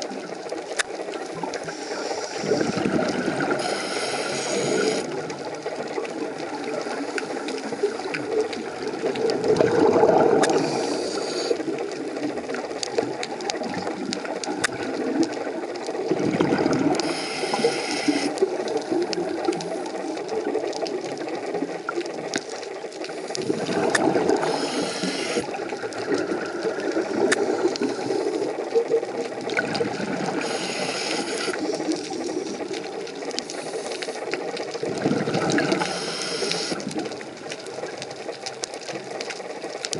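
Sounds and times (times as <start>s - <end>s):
small underwater clicks and crackles: 0.0s - 39.9s
exhaled bubbles rushing: 1.1s - 38.4s
diver breathing through regulator: 1.6s - 5.1s, 10.4s - 11.7s, 16.9s - 18.4s, 23.2s - 25.5s, 27.4s - 28.6s, 30.1s - 32.2s, 33.4s - 34.4s, 35.0s - 36.8s.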